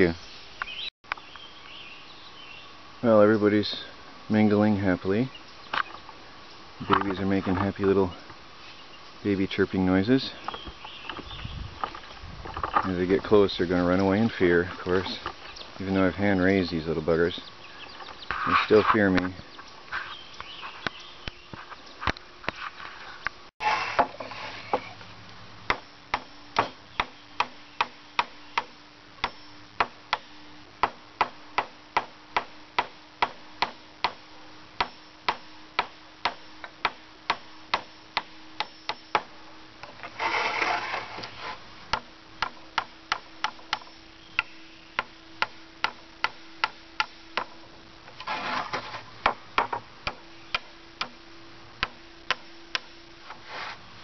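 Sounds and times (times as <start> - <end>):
rustling and scraping: 6.8 - 8.9, 10.2 - 25.2, 39.8 - 41.9, 48.0 - 49.9, 53.2 - 54.0.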